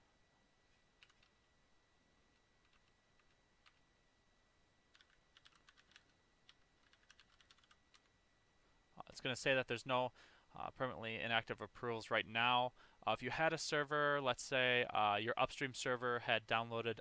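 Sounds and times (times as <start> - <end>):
faint keyboard typing: 0.7 - 1.5, 2.3 - 3.9, 4.9 - 8.2.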